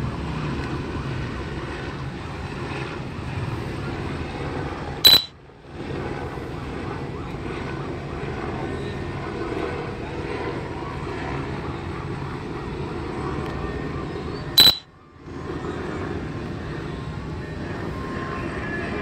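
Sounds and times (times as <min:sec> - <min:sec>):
short high-pitched blip: 0:05.1 - 0:05.3, 0:14.6 - 0:14.8.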